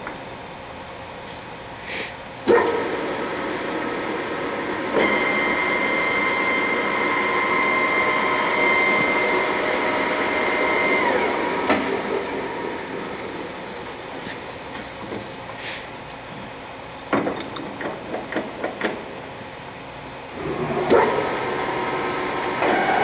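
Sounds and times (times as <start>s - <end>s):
lathe gear whine: 2.6s - 15.5s, 20.2s - 23.0s.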